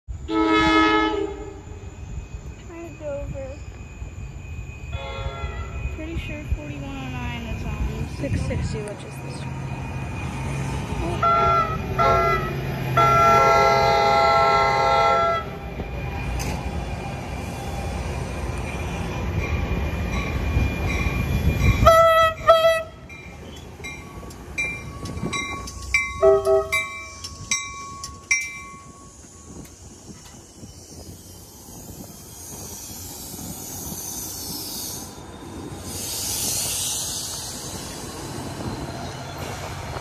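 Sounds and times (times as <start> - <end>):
train rumble: 0.1 - 40.0
train horn blasts: 0.2 - 1.8, 4.9 - 5.9, 11.2 - 15.6, 21.8 - 23.1, 26.2 - 26.9
wheel and brake squeals: 23.2 - 40.0.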